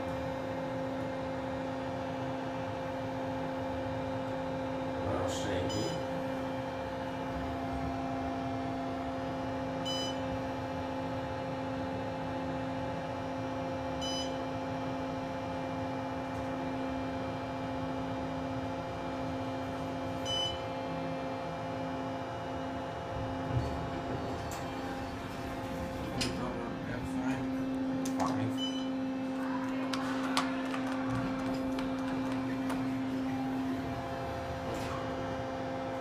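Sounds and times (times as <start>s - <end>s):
elevator floor-passing beep: 5.6s - 6.2s, 9.8s - 10.4s, 14.0s - 14.4s, 20.2s - 20.8s, 28.5s - 29.1s
elevator hum: 16.0s - 36.0s.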